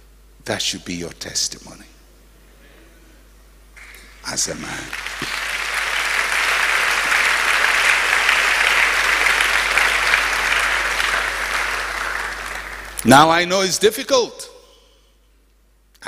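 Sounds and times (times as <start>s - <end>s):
congregation applauding: 3.8s - 13.8s.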